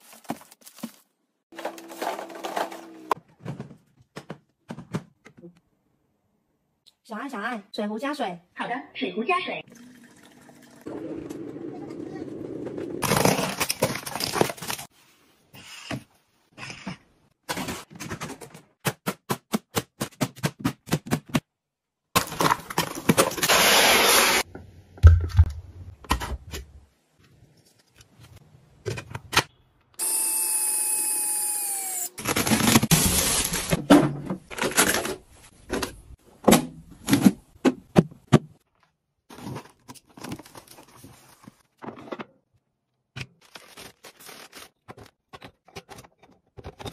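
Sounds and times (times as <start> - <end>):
small electric motor whirring: 30.0 - 32.2.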